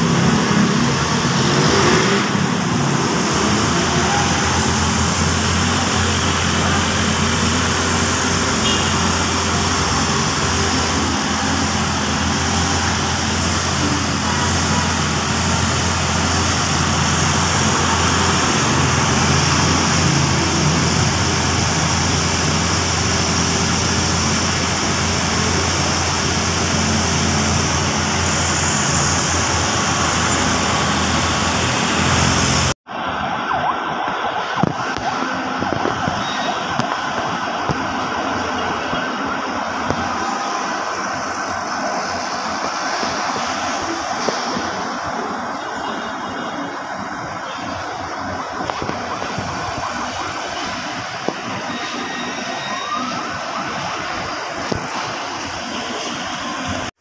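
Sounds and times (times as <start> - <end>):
city traffic with engine hum: 0.0 - 57.0.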